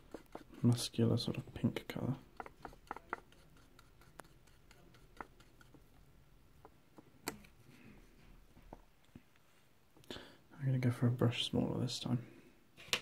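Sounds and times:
faint clicks and taps: 2.3s - 6.0s.

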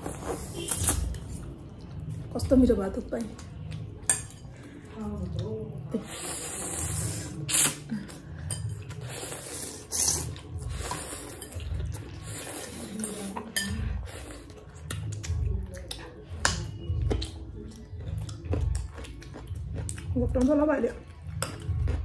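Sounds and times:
noodles being slurped: 6.0s - 8.2s, 8.9s - 15.2s
cutlery clinking against bowls: 8.4s - 9.0s, 10.1s - 12.1s, 13.0s - 13.8s.

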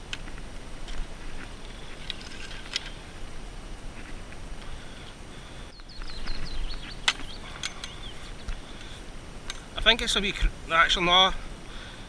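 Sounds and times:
small birds chirping: 4.0s - 9.0s
wind rumble on microphone: 5.4s - 10.7s.

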